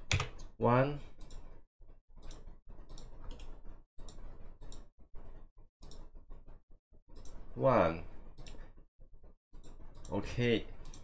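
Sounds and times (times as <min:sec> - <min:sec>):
computer mouse clicking: 0:02.2 - 0:04.9, 0:10.8 - 0:11.0.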